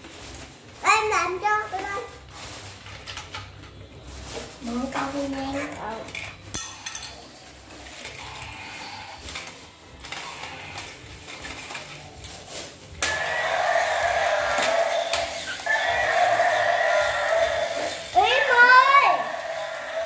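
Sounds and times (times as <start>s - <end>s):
electronic toy roar: 8.0s - 11.0s, 13.0s - 20.0s.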